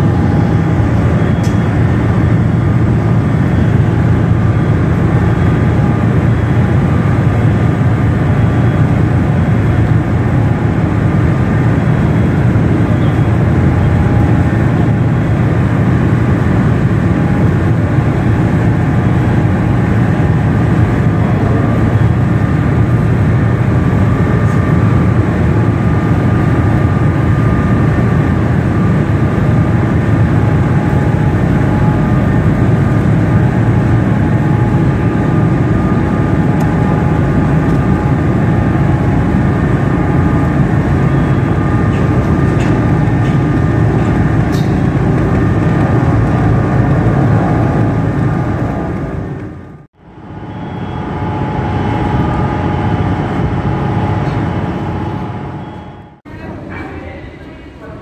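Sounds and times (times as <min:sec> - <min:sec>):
faint high whine: 0:00.0 - 0:56.3
ship engines rumbling: 0:00.0 - 0:58.0.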